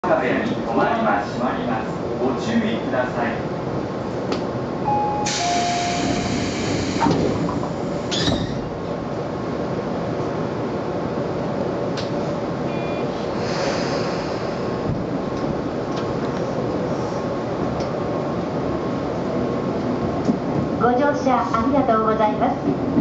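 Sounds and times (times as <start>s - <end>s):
train hum: 0.0s - 23.0s
train doors shutting: 4.1s - 9.0s, 11.9s - 18.2s
short beep: 4.9s - 6.1s, 12.7s - 13.1s
air hiss: 5.2s - 8.3s, 13.4s - 14.8s.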